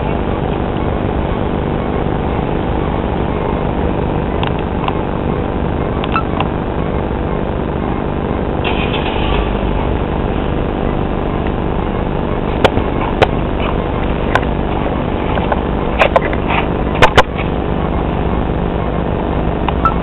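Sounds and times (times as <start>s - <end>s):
camcorder handling hiss and rumble: 12.5s - 17.6s.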